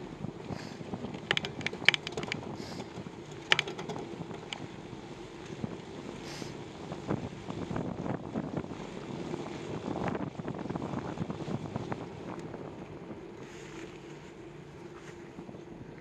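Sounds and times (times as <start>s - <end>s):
wind on microphone: 0.0s - 16.0s
rapid rattles and clicks from bike: 1.0s - 4.7s.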